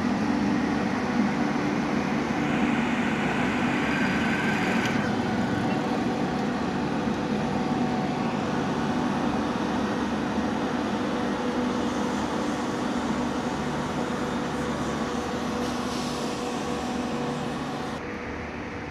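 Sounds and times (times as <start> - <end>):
train rumble and hum: 0.0 - 18.9.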